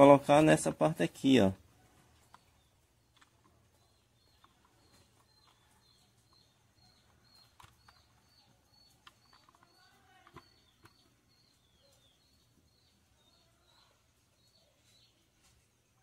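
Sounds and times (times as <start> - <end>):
faint bird chirp: 0.0 - 16.0
plastic parts clicking: 7.0 - 11.0.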